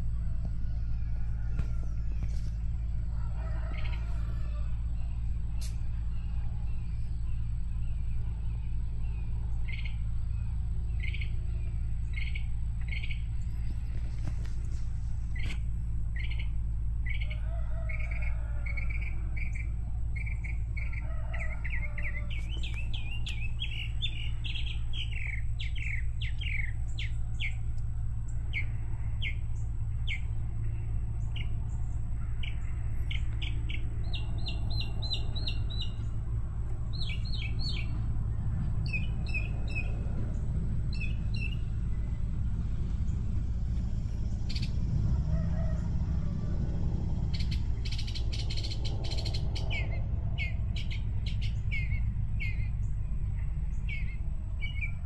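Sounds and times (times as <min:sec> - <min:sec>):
steady low hum: 0:00.0 - 0:55.0
small birds chirping: 0:03.5 - 0:45.2, 0:47.1 - 0:55.0.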